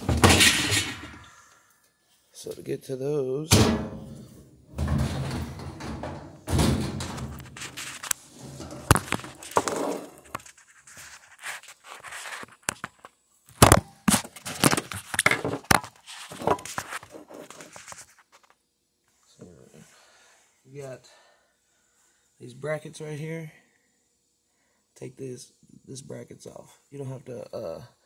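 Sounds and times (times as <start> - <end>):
washing machine thunks and knocks: 0.0 - 1.2, 3.5 - 7.4
washing machine scraping: 0.0 - 1.3, 3.5 - 10.2.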